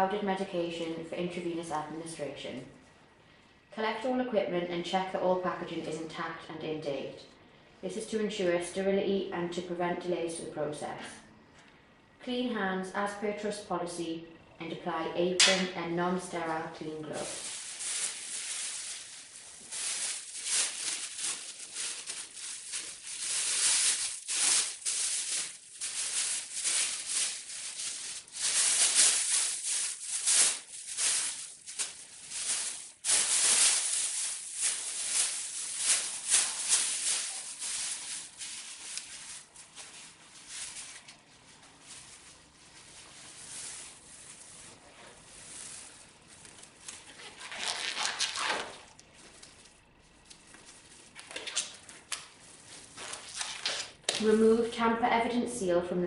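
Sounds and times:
plastic apron crinkling: 15.4s - 54.6s.

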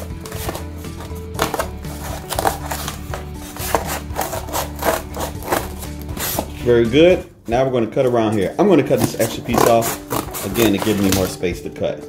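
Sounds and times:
scissors cutting cardboard: 0.0s - 6.6s, 8.9s - 11.3s
soft background music: 0.0s - 12.0s.

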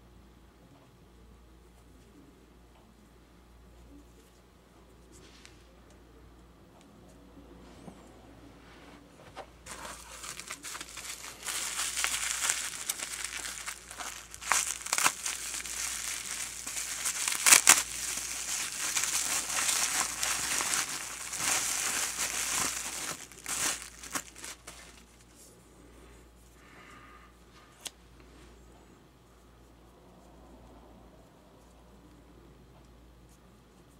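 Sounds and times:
bubble wrap crinkling: 9.6s - 25.4s.

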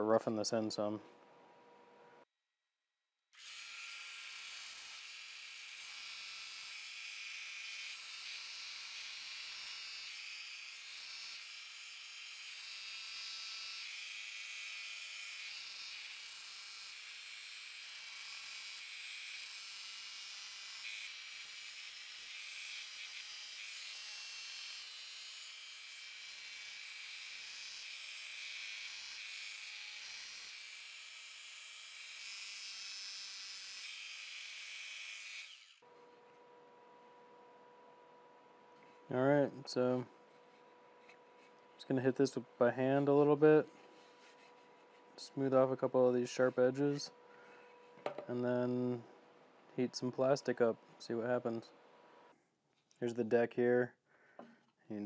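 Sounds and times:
belt sander sanding wood: 39.8s - 48.9s.

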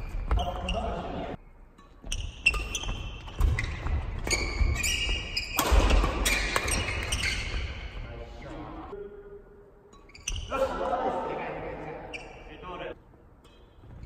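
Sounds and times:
shoe squeaks: 0.0s - 1.2s, 1.8s - 8.1s, 9.9s - 10.6s, 12.1s - 12.6s.

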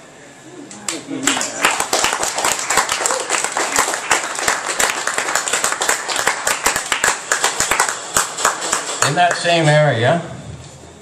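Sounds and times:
audience applauding: 0.9s - 9.7s.

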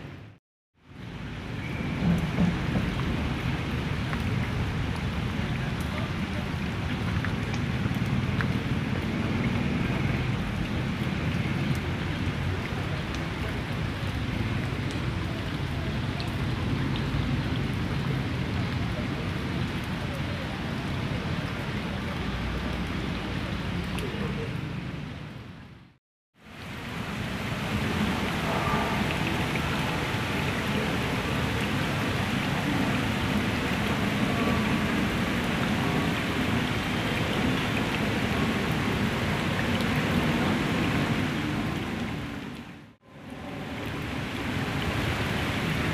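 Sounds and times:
heavy rain pouring on puddles: 0.3s - 25.8s, 26.4s - 45.9s.

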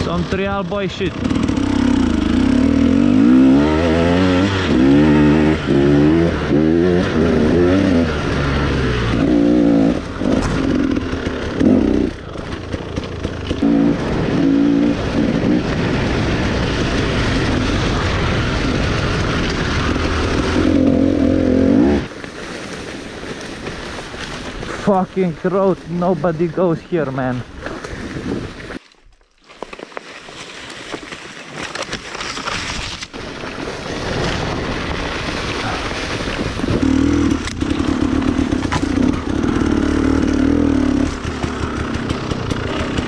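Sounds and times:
dirt bike engine revving: 0.0s - 22.1s, 34.1s - 43.0s.

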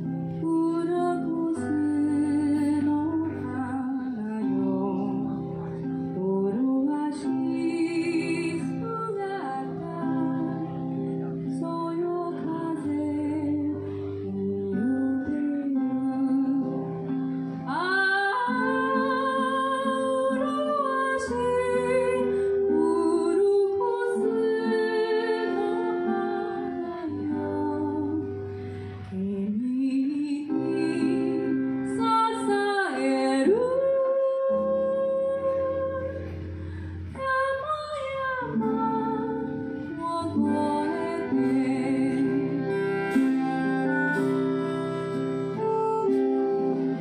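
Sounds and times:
acoustic guitar: 0.0s - 47.0s
woman singing slow song: 0.0s - 47.0s.

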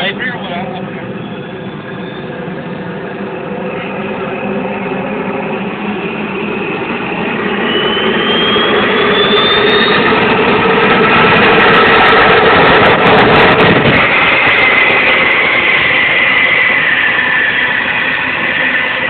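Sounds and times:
jet engine running: 0.0s - 19.0s
turbine whine rising in pitch: 0.0s - 19.0s.

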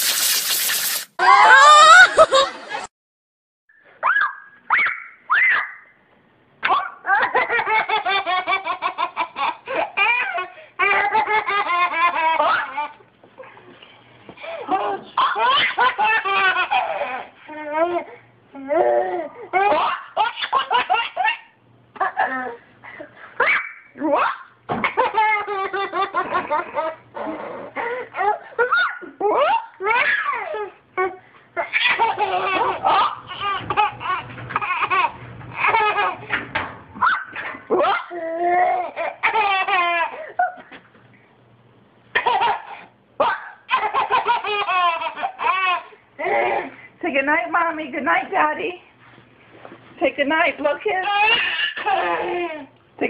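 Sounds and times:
toddler giggling: 23.4s - 36.3s, 42.2s - 46.8s, 51.0s - 52.7s.

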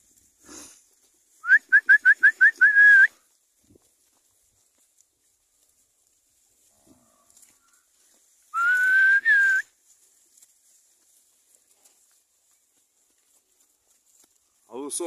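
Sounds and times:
person whistling: 1.4s - 3.2s, 8.6s - 9.7s.

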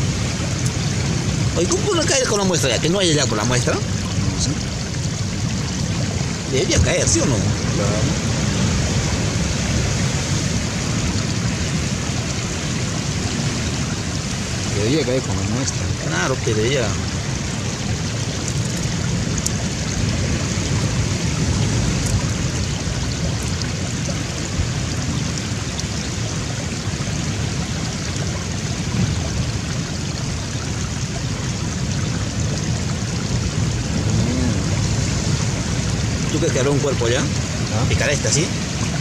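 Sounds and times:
rough surf on rocky shore: 0.0s - 39.0s.

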